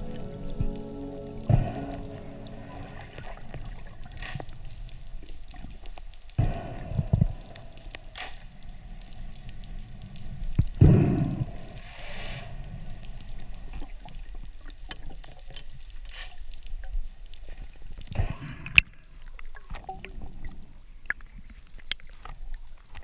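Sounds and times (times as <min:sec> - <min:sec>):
rush of water: 0:00.0 - 0:16.6
small clicks and crackles: 0:00.0 - 0:23.0
underwater low rumble: 0:00.0 - 0:23.0.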